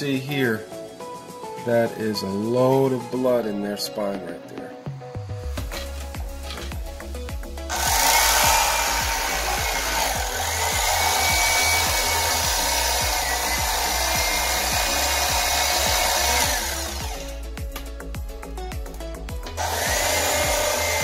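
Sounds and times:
background music: 0.0s - 21.0s
electric fillet knife running: 7.7s - 17.5s, 19.4s - 21.0s.

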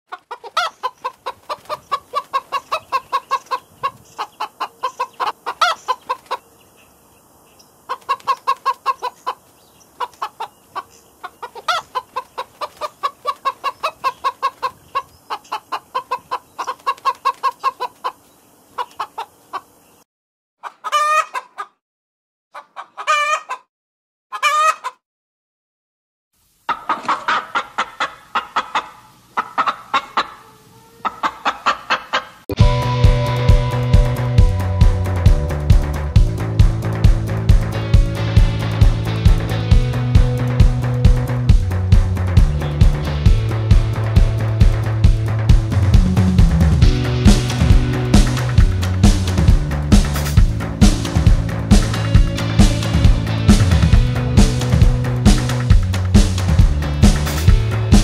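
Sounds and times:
chickens clucking: 0.1s - 6.5s, 7.8s - 19.8s, 20.6s - 21.8s, 22.5s - 23.7s, 24.3s - 25.0s, 26.7s - 32.6s
drawn-out wavering chicken calls: 0.1s - 6.5s, 7.8s - 19.8s, 20.6s - 21.8s, 22.5s - 23.7s, 24.3s - 25.0s, 26.7s - 34.8s.

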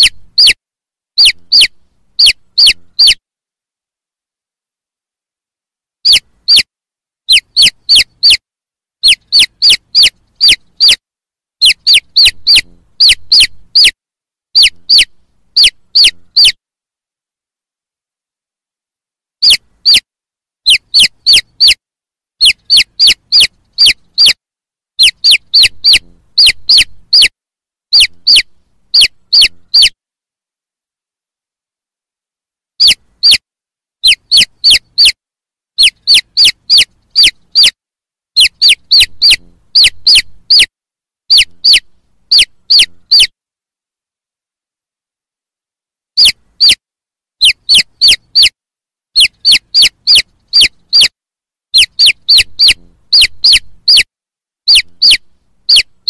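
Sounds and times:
baby chicks peeping: 0.0s - 0.6s, 1.2s - 3.2s, 6.0s - 6.7s, 7.3s - 8.4s, 9.0s - 11.0s, 11.6s - 16.6s, 19.4s - 20.0s, 20.6s - 21.8s, 22.4s - 24.4s, 25.0s - 27.3s, 27.9s - 30.0s, 32.8s - 33.4s, 34.0s - 35.2s, 35.8s - 37.8s, 38.4s - 40.7s, 41.3s - 43.3s, 46.2s - 46.8s, 47.4s - 48.6s, 49.2s - 51.1s, 51.7s - 56.0s.

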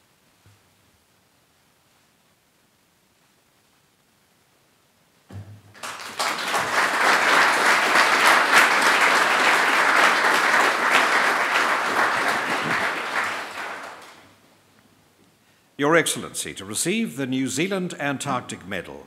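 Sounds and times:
audience applauding: 5.7s - 14.3s.

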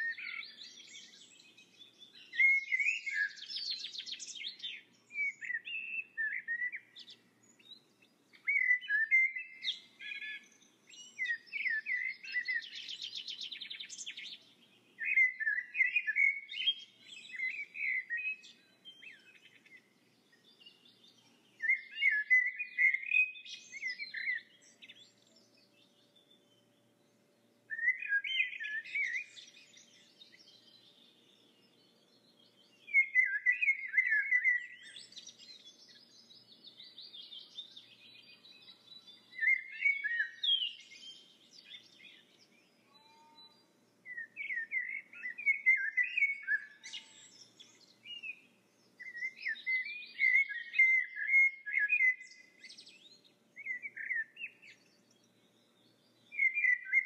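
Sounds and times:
bird chirps and warbles: 0.0s - 57.0s.

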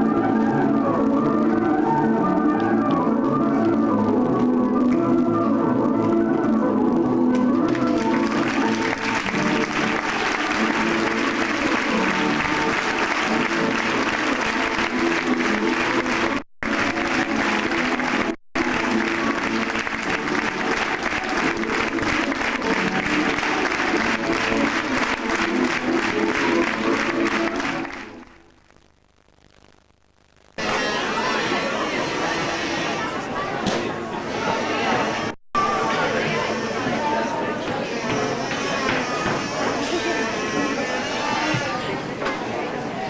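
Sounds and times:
audience applauding: 7.6s - 28.4s.

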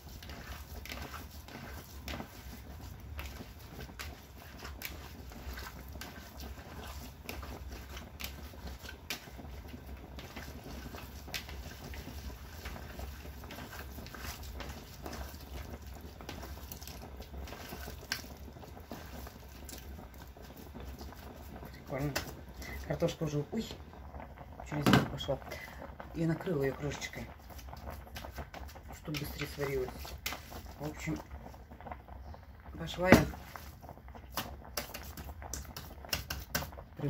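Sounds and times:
hands patting meat: 34.3s - 36.8s.

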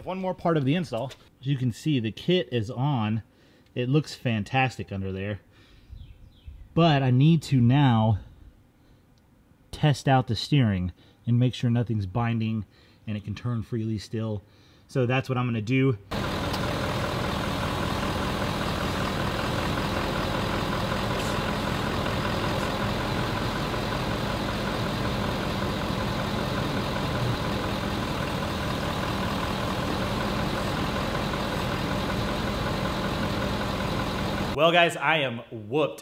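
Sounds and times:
truck engine idling: 16.1s - 34.6s.

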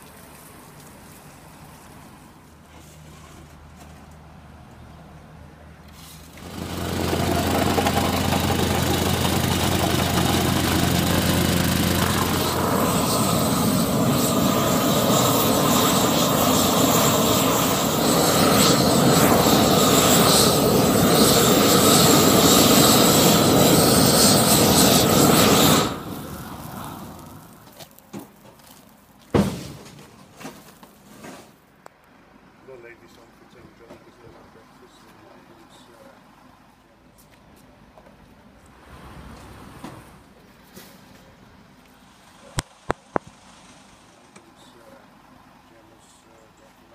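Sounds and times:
gas torch roaring: 6.2s - 27.9s.

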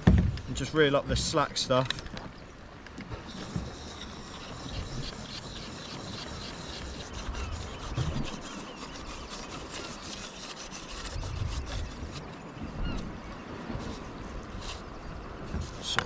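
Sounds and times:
rope rubbing and scraping on reel: 3.3s - 12.4s, 13.8s - 14.9s.

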